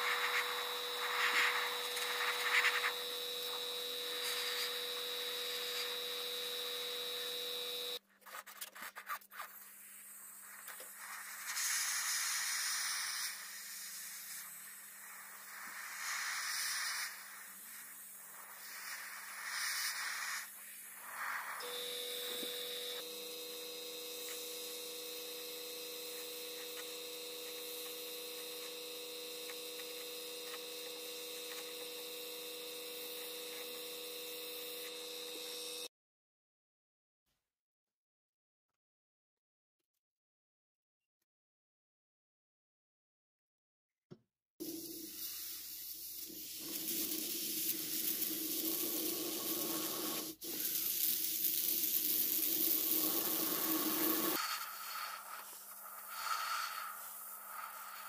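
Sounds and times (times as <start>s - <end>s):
airbrush compressor humming: 0.0s - 8.0s, 13.1s - 35.9s, 44.6s - 58.0s
airbrush spray hisses: 0.0s - 8.0s, 9.7s - 35.6s, 44.6s - 58.0s.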